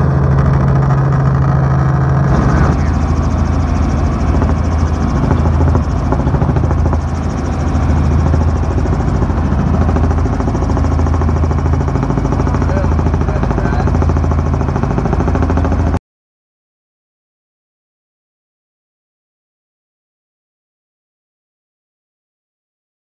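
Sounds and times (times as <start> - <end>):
helicopter engine and rotor drone: 0.0 - 16.0.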